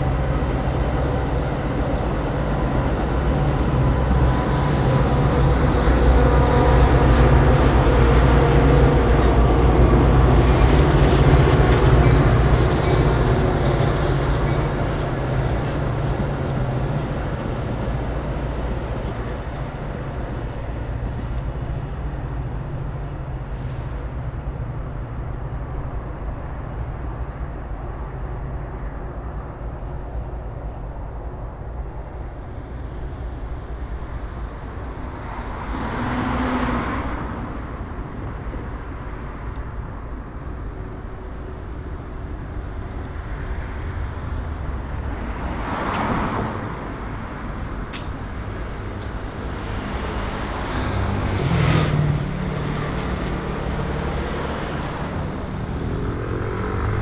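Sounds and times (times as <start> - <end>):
low rumble of road noise: 0.0 - 57.0
vehicles passing by: 0.0 - 57.0.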